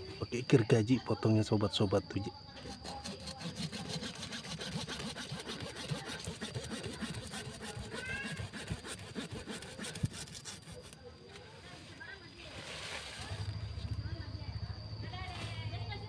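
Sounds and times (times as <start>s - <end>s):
hand saw cutting a branch: 2.6s - 11.0s.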